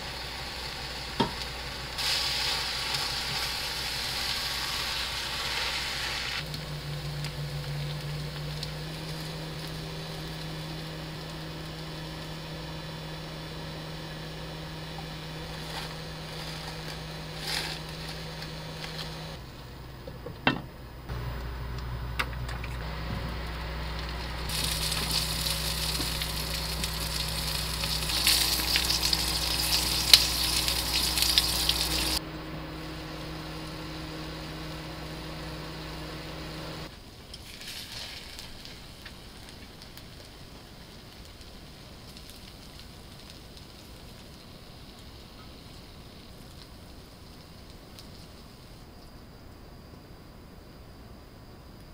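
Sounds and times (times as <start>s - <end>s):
rice sizzling in a frying pan: 0.0s - 19.4s, 22.8s - 49.4s
low hum: 0.0s - 36.9s.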